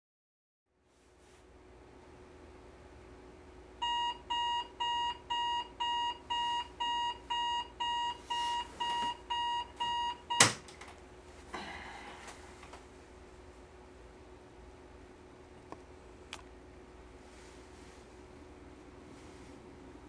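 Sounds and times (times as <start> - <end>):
alarm clock beeping: 3.8 - 10.5.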